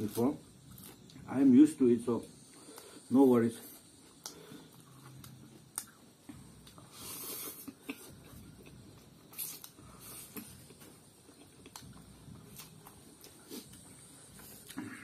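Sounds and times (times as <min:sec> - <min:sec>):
chewing: 0:00.6 - 0:01.3, 0:03.8 - 0:15.0
noodles being slurped: 0:09.3 - 0:10.6.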